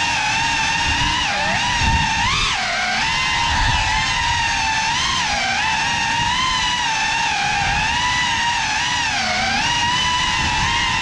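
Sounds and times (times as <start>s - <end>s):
drone motors whining: 0.0s - 11.0s.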